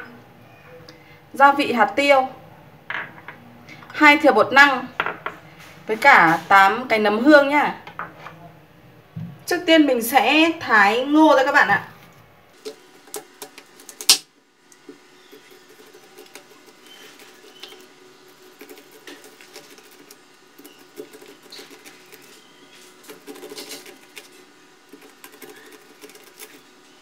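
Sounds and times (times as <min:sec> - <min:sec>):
knife cutting corn kernels: 0:15.2 - 0:26.8.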